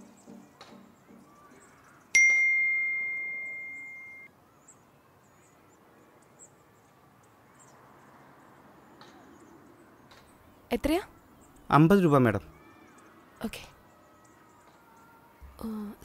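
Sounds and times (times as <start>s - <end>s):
phone notification ding: 2.2s - 4.3s.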